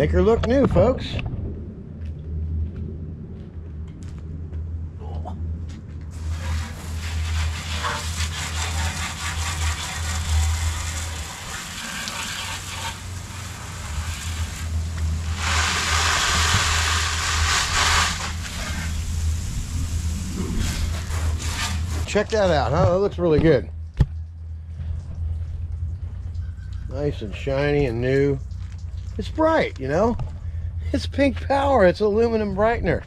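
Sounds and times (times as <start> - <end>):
pressure washer engine humming: 6.1 - 22.7
water spray hissing on metal: 6.2 - 22.4.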